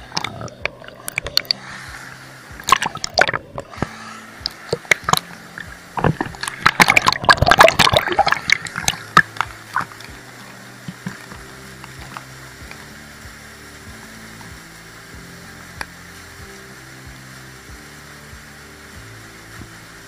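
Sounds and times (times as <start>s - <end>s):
water splashing and sloshing: 0.0s - 13.0s.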